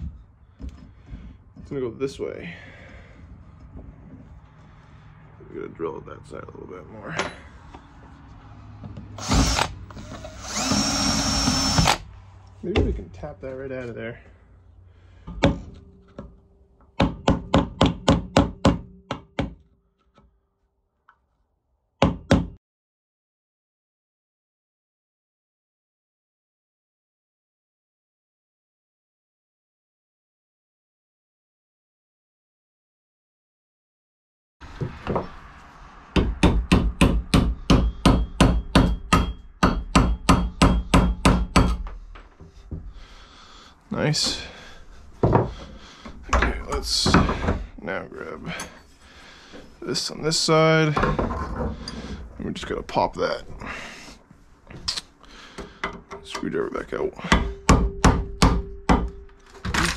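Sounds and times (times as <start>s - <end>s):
hammer striking steel punch: 36.2s - 41.8s, 57.3s - 59.3s.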